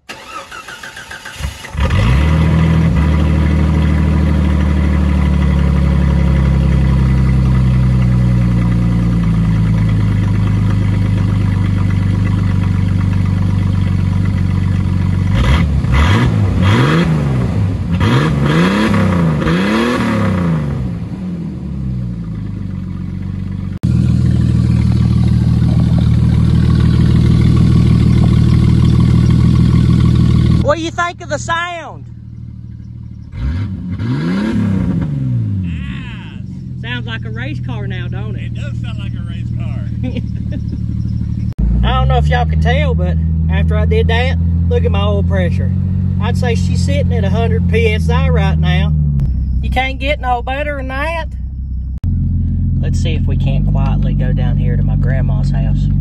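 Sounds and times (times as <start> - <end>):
engine cranking and starting: 0.0 - 16.9
engine revving: 0.0 - 56.0
loud deep exhaust idling: 1.7 - 56.0.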